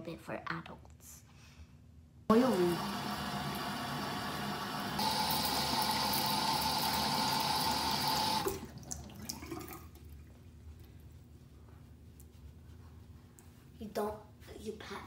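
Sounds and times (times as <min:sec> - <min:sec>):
sink tap running: 0:02.3 - 0:09.9.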